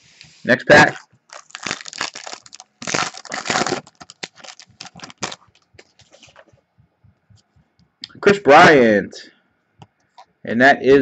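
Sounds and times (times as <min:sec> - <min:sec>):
foil wrapper tearing and crinkling: 0:00.9 - 0:06.4.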